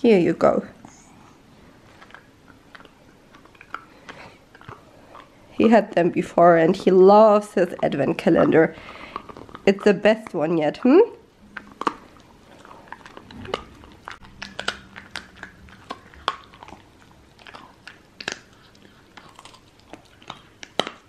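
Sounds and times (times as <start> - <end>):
dog chewing hard treat: 8.5 - 9.9, 11.5 - 21.0.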